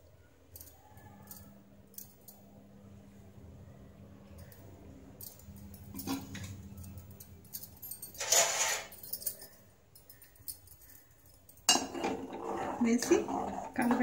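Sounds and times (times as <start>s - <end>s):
low steady hum: 0.0s - 14.0s
light clicks and clinks: 0.5s - 2.5s, 4.3s - 11.7s.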